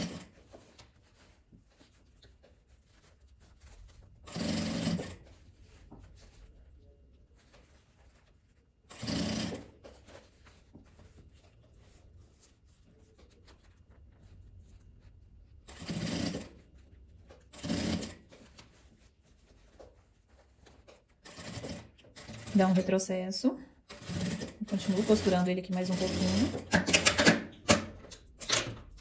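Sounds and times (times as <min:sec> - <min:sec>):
sewing machine stitching: 0:00.0 - 0:00.4, 0:04.2 - 0:05.4, 0:08.9 - 0:10.0, 0:15.7 - 0:16.6, 0:17.5 - 0:18.4, 0:21.2 - 0:23.0, 0:23.8 - 0:28.8.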